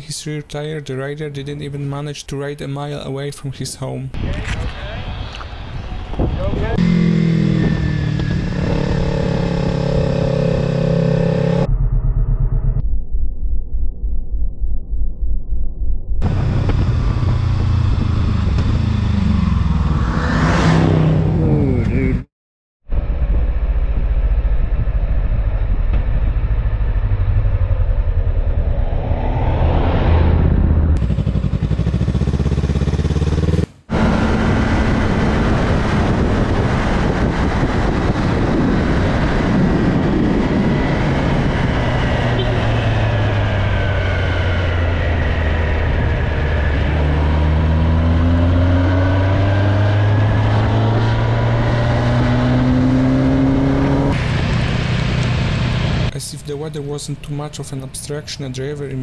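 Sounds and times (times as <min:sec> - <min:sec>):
wind and road noise: 0:00.0 - 0:12.8, 0:16.2 - 0:22.2, 0:22.9 - 0:59.0
another motorcycle running: 0:04.3 - 0:12.8, 0:16.2 - 0:22.1, 0:23.0 - 0:56.1
motorcycle engine revving: 0:05.0 - 0:12.8, 0:16.2 - 0:22.2, 0:25.0 - 0:56.1.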